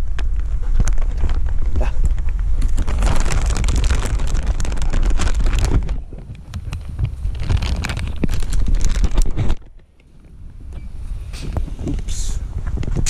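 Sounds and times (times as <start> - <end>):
crackling handling and scuffing: 0.0 - 13.0
wind rumbling on microphone: 0.0 - 13.0.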